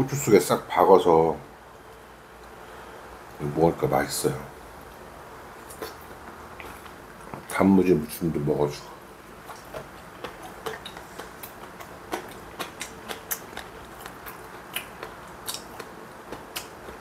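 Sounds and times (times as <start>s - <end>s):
chewing crunchy pickled radish: 4.8s - 7.6s, 9.2s - 17.0s.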